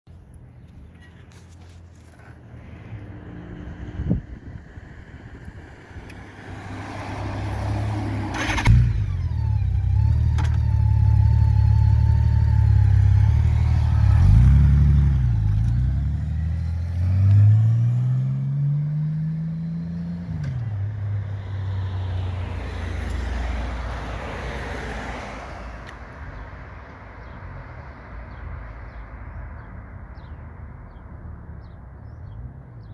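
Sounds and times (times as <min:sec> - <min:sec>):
motorcycle pulling away: 0:06.2 - 0:20.9.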